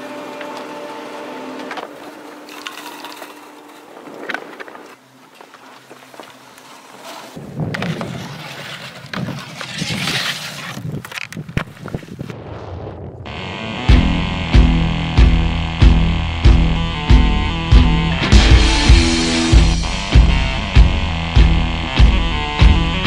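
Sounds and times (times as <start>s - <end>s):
ski lift machinery humming: 0.0s - 6.7s
ski scraping along a rail: 0.0s - 12.3s
skis scraping over snow: 0.0s - 12.4s.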